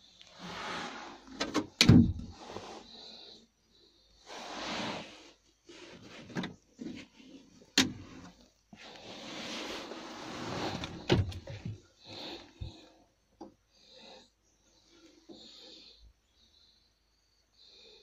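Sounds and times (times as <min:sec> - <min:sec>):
plastic lids rubbing and rustling: 0:05.7 - 0:12.8.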